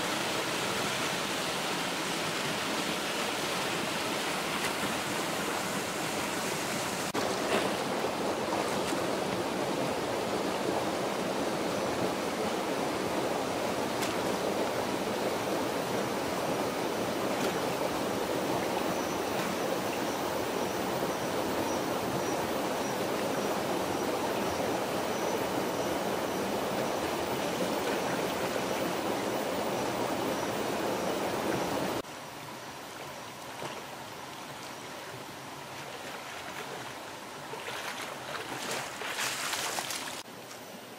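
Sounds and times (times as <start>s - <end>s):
stream rushing over boulders: 0.0s - 40.9s
splash from wading: 7.1s - 9.1s, 35.7s - 40.2s.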